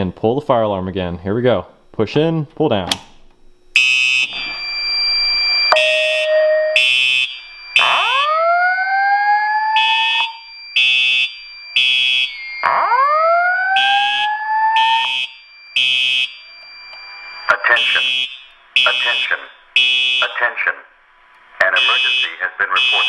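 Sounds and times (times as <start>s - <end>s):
steady alarm tones: 3.5s - 23.0s
fire alarm horn pulsing: 3.7s - 20.6s, 21.6s - 23.0s
rising sweep tones: 4.3s - 9.1s
voice evacuation message: 17.5s - 21.0s, 21.6s - 23.0s.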